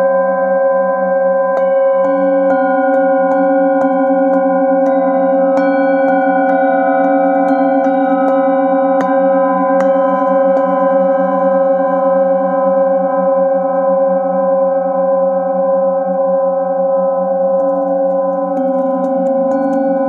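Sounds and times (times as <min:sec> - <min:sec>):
singing bowls ringing: 0:01.0 - 0:20.0
mallet rubbing bowl rim: 0:01.6 - 0:12.8, 0:17.6 - 0:20.0.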